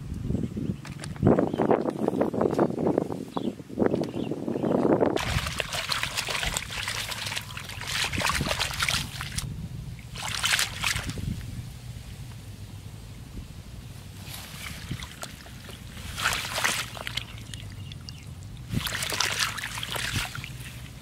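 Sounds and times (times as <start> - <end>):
water splashing and trickling: 5.2 - 12.1, 13.9 - 21.0
basket rustling on grass: 14.2 - 17.4.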